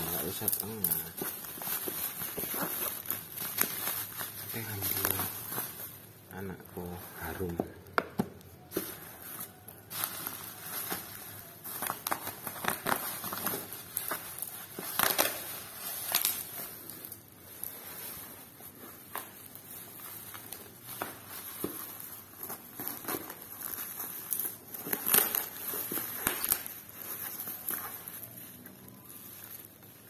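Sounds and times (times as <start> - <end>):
bubble wrap and tape crinkling: 0.0 - 30.0.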